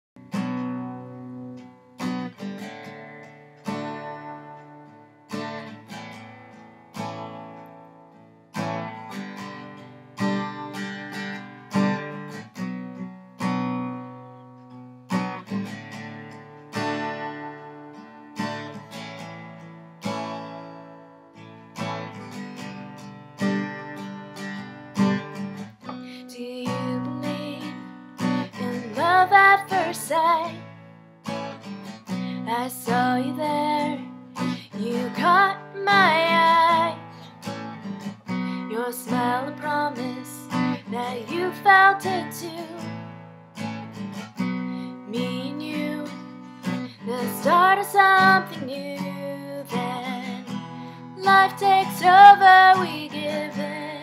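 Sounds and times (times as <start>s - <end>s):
acoustic guitar chords: 0.2s - 54.0s
person singing: 26.0s - 27.9s, 28.6s - 30.6s, 32.4s - 37.1s, 38.5s - 42.9s, 44.7s - 50.5s, 51.2s - 54.0s.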